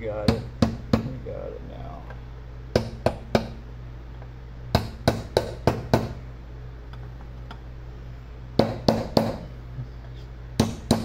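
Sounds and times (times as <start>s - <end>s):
steady low hum: 0.0s - 11.0s
hammer tapping metal punch: 2.7s - 3.6s, 4.7s - 6.2s, 8.6s - 9.5s, 10.6s - 11.0s.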